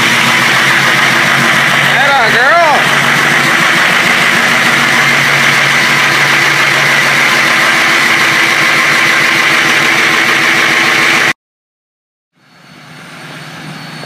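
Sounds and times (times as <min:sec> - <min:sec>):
diesel engine idling: 0:00.0 - 0:11.4
high-pitched whine: 0:12.4 - 0:14.0.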